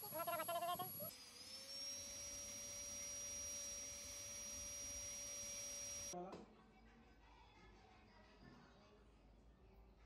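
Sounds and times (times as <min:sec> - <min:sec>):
rotary tool whining: 0:00.0 - 0:06.2.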